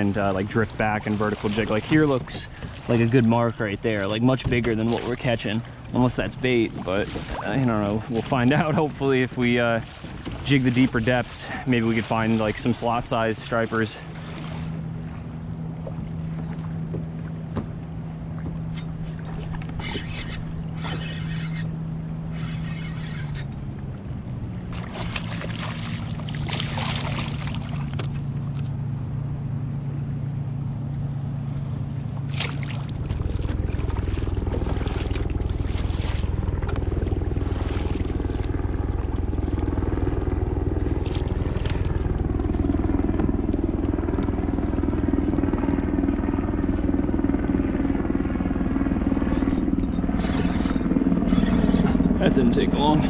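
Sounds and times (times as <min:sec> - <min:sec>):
motorboat engine running: 0:00.0 - 0:53.0.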